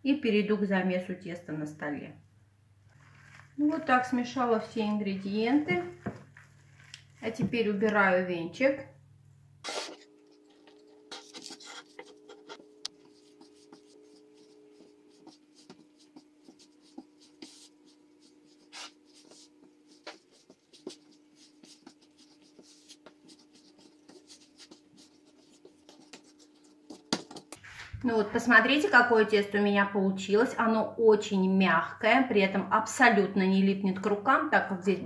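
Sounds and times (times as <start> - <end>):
faint steady hum: 0.0 - 35.0
hands kneading dough: 9.7 - 28.2.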